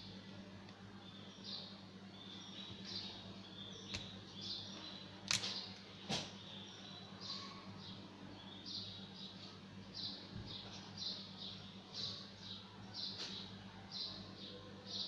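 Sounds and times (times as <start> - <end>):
steady low hum: 0.0 - 15.0
sharp plastic clicks: 5.2 - 6.3.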